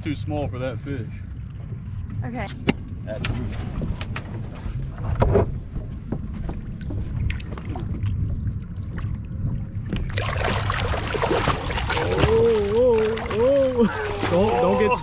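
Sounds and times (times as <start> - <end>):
wind rumble on microphone: 0.0 - 15.0
fish thrashing and splashing: 10.0 - 15.0.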